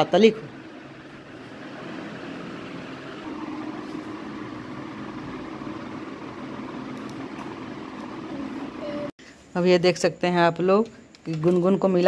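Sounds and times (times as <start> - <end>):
steady mechanical hum: 0.0 - 9.6.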